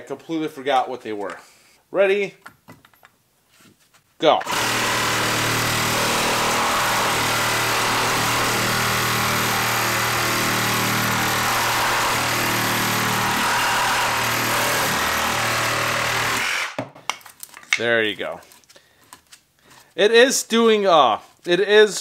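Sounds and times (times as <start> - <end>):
reciprocating saw cutting wood: 4.5 - 16.8.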